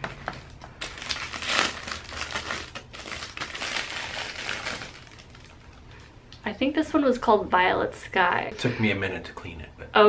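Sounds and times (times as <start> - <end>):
plastic packaging crinkling: 0.2 - 6.2.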